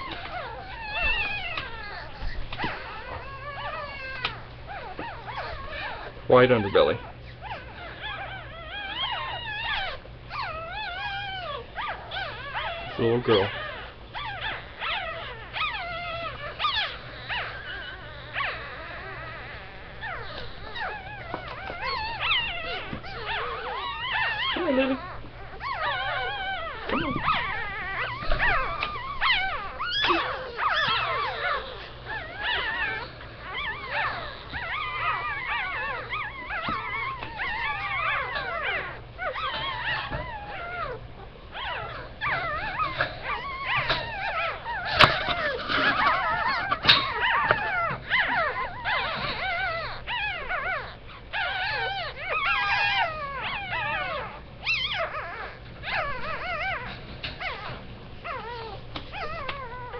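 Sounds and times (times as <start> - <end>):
puppies squealing and whimpering: 0.0 - 59.9.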